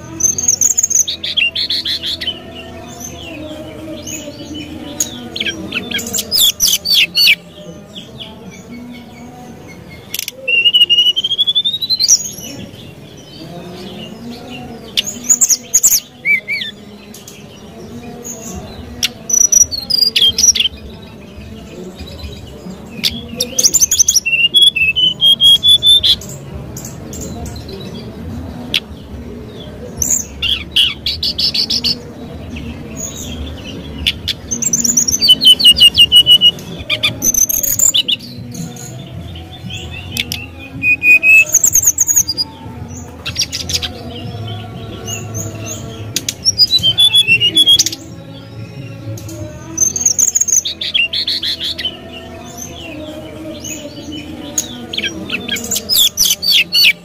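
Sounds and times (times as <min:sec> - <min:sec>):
bird singing whistled phrases: 0:10.1 - 0:12.2, 0:46.5 - 0:48.0.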